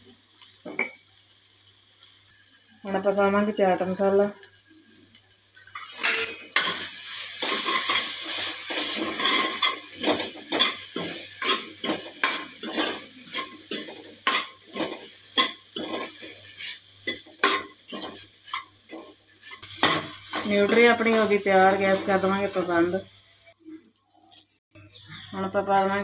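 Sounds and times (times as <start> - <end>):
steel spoon scraping a metal pan: 5.7 - 22.8.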